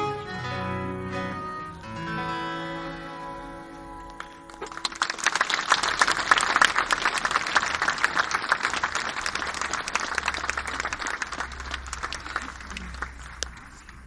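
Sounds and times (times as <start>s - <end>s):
audience applauding: 4.0s - 14.0s.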